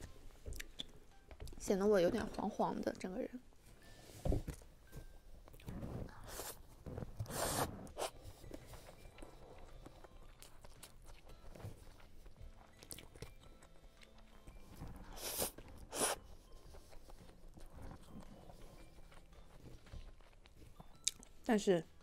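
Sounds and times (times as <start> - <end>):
chewing and biting food: 7.3 - 22.0.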